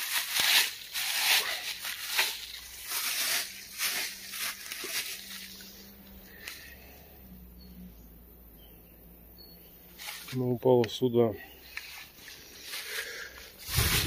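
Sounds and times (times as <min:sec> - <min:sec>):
footsteps crunching through dry leaves: 0:00.0 - 0:06.8, 0:09.9 - 0:10.6, 0:11.6 - 0:14.0.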